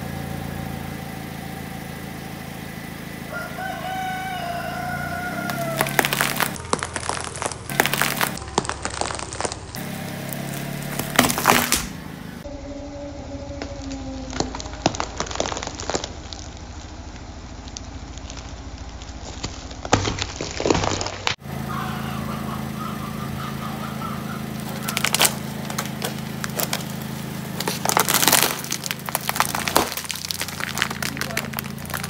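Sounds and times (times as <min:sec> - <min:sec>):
tyre crushing fruit: 0:04.3 - 0:12.3, 0:13.8 - 0:17.0, 0:17.8 - 0:22.0, 0:22.6 - 0:32.0
plastic cups crackling and crunching: 0:05.4 - 0:11.9, 0:14.4 - 0:16.6, 0:24.0 - 0:32.0.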